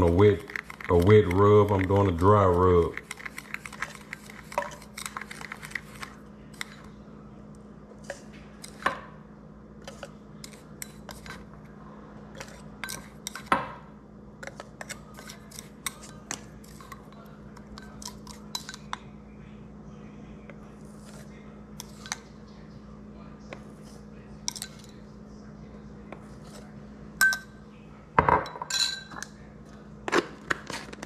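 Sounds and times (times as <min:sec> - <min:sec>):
steady low hum: 0:00.0 - 0:31.0
dishes and utensils clinking: 0:27.2 - 0:27.6, 0:28.2 - 0:29.3.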